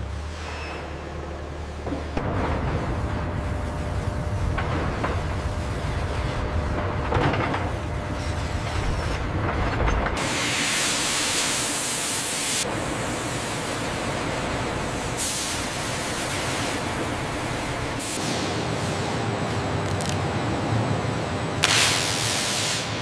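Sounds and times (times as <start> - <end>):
low machine rumble: 0.0 - 10.2, 12.6 - 21.6
loud steady hiss: 10.2 - 19.2, 21.6 - 23.0.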